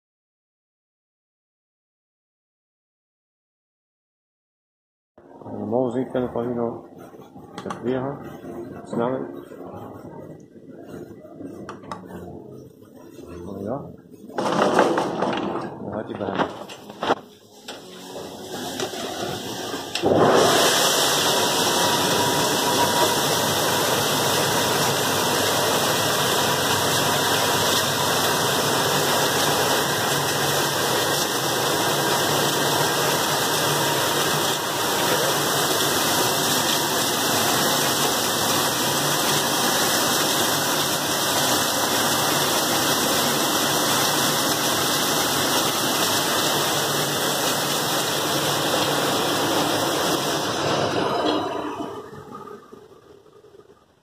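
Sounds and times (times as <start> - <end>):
dishwasher water spraying: 17.8 - 52.0.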